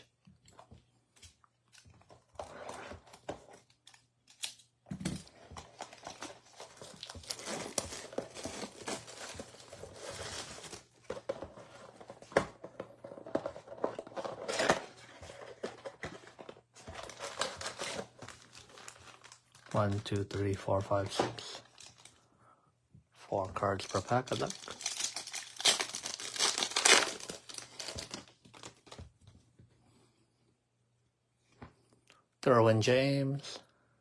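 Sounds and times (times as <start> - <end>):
packs being handled: 13.2 - 22.1, 23.6 - 29.0
plastic shrink wrap tearing: 23.8 - 28.9.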